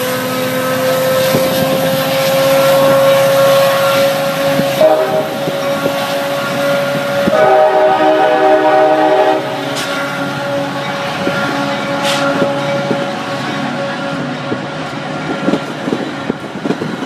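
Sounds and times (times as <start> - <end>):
train rolling hum: 0.0 - 17.0
locomotive horn blasts: 2.4 - 10.9.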